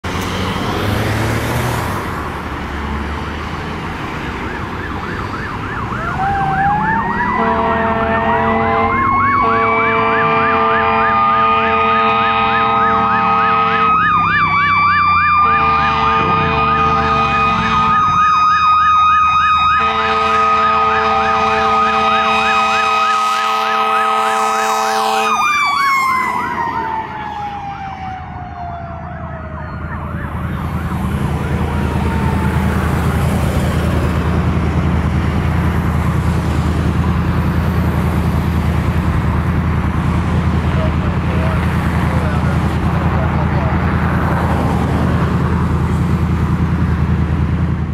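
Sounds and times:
electronic yelp siren: 4.1s - 33.8s
mechanical siren howling: 4.1s - 36.3s
air horn blasts: 7.2s - 14.2s, 15.3s - 18.3s, 19.7s - 25.6s.

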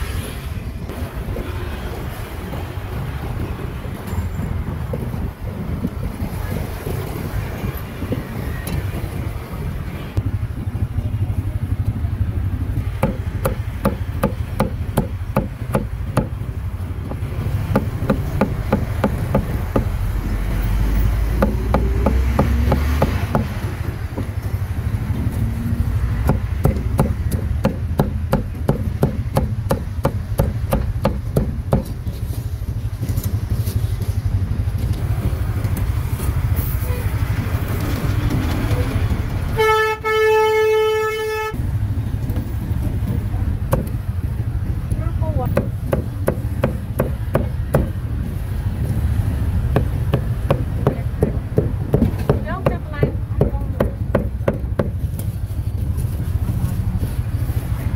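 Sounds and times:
street traffic rumble: 0.0s - 57.9s
cleaver chopping meat: 21.3s - 23.6s, 26.2s - 31.9s
vehicle horn: 36.8s - 37.2s, 39.5s - 41.6s.

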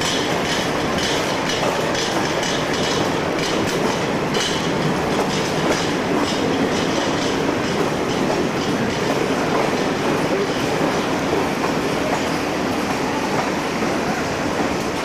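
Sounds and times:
wheels clattering over rail joints: 0.0s - 12.4s
train rumbling past: 0.0s - 15.0s.

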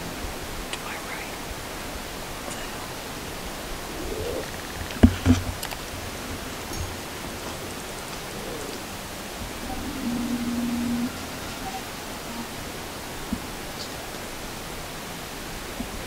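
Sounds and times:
steady hiss of woods: 0.0s - 16.0s
sharp knocks: 4.9s - 5.7s.

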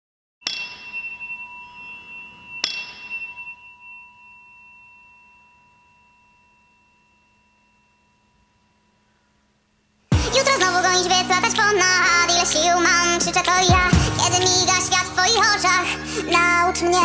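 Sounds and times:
bell-like chime ringing: 0.4s - 9.3s.

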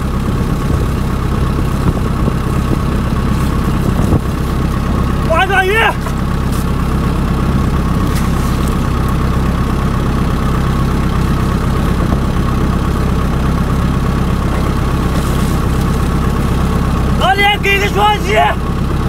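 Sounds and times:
boat engine idling: 0.0s - 19.0s.

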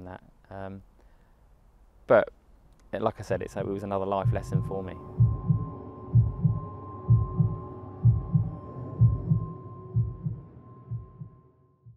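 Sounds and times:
thin humming tone: 3.4s - 11.8s
heartbeat thumps: 4.2s - 11.9s.

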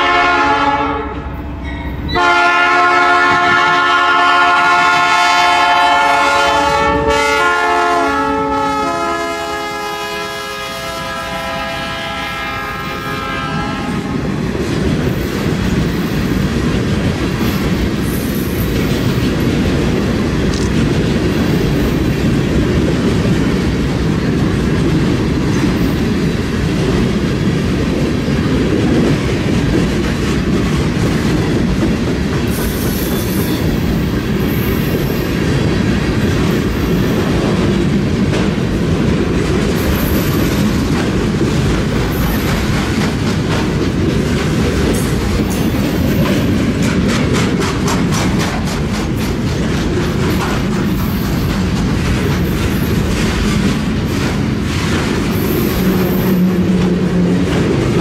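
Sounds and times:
locomotive air horn: 0.0s - 1.4s, 2.1s - 14.3s
train cars clacking on rails: 0.0s - 58.0s.

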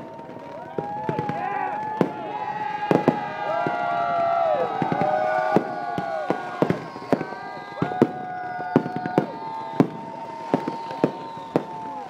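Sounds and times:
fireworks bangs: 0.0s - 12.0s
fireworks whistling: 0.0s - 12.0s.

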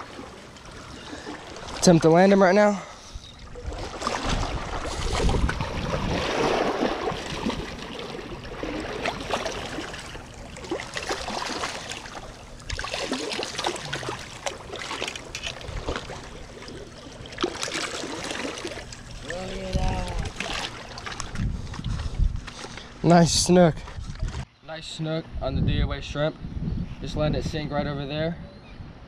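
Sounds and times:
water lapping against rocks: 0.0s - 22.9s.

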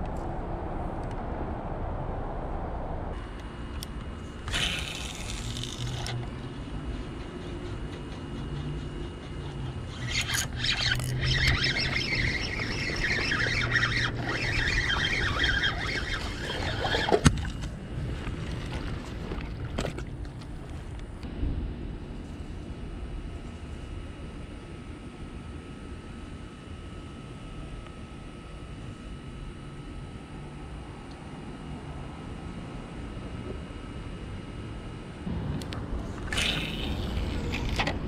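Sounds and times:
fishing reel and line: 3.8s - 20.5s, 36.1s - 38.0s.

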